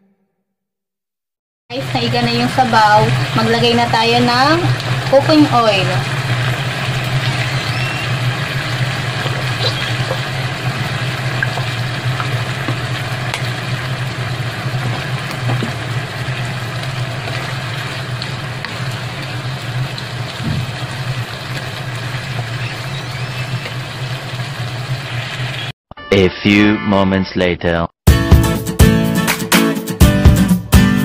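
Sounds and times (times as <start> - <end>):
low mechanical hum: 1.8 - 25.7
meat frying in oil: 1.8 - 25.7.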